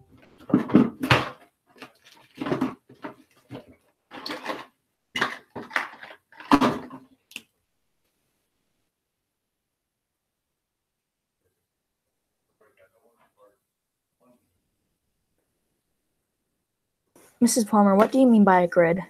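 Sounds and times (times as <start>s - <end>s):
small objects rattling on table: 0.5s - 7.1s.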